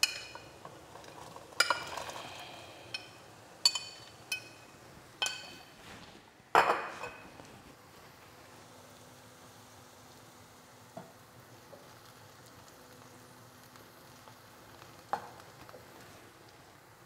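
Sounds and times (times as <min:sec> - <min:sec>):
pasta clinking against metal pot: 0:00.0 - 0:05.6.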